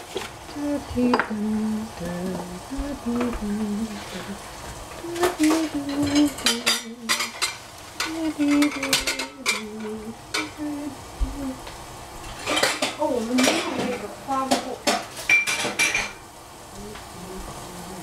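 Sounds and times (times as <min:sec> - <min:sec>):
metal utensils and pots clattering: 0:05.0 - 0:10.6, 0:12.2 - 0:16.2.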